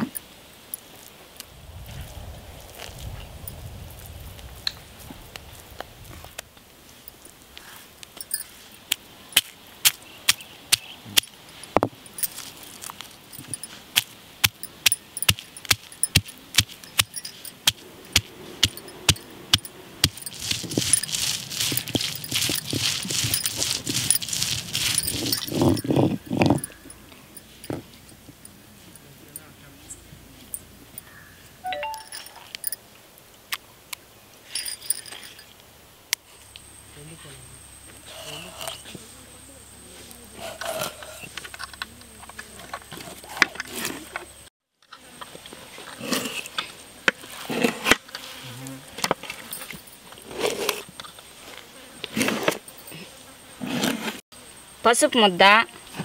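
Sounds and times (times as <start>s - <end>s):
stone roller grinding scrape: 15.2s - 27.8s, 49.0s - 51.1s, 52.0s - 52.8s, 53.6s - 54.2s
short chirping tones: 31.0s - 32.7s.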